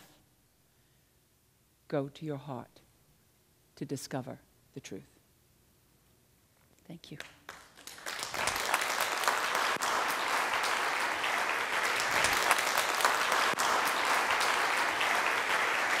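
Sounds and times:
audience applauding: 7.4s - 16.0s.

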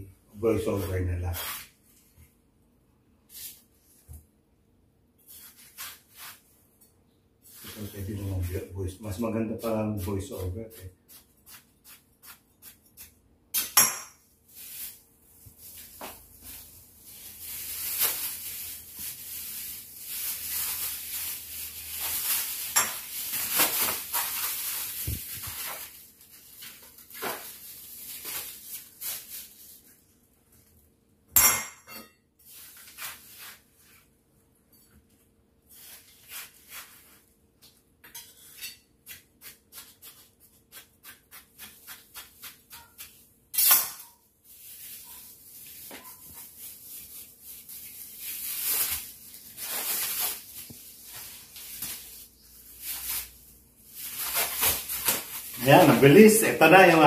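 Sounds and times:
plastic bag crinkling: 14.5s - 30.6s, 44.4s - 57.0s.

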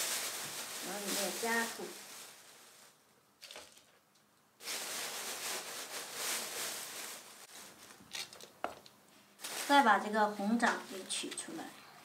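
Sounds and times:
plastic bag and soil rustling: 0.0s - 3.9s, 4.6s - 8.4s, 9.4s - 11.6s.

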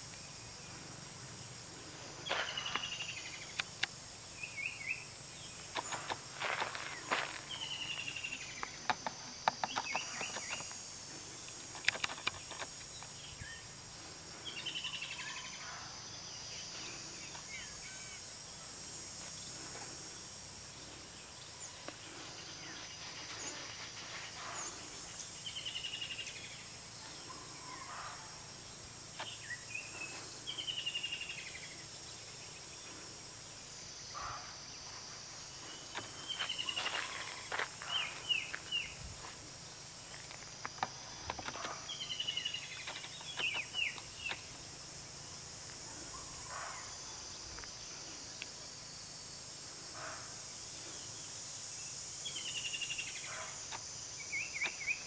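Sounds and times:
high insect drone: 0.0s - 55.0s.

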